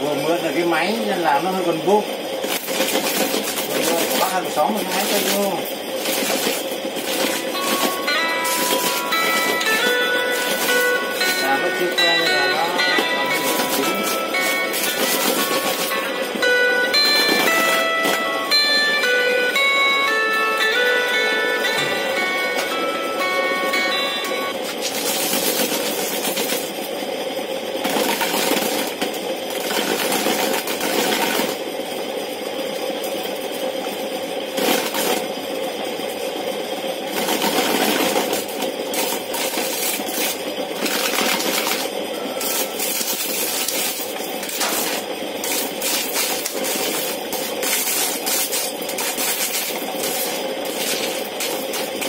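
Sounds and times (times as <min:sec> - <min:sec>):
spinning disc motor humming: 0:00.0 - 0:52.0
corn kernels rasping and rattling: 0:00.2 - 0:18.2, 0:24.6 - 0:27.0, 0:27.8 - 0:31.7, 0:34.5 - 0:35.4, 0:37.0 - 0:52.0.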